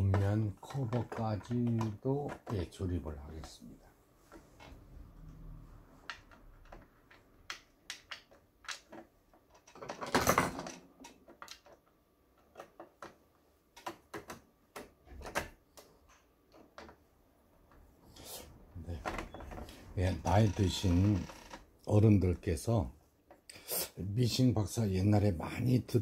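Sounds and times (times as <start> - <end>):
plastic clicks and taps: 0.1 - 2.7.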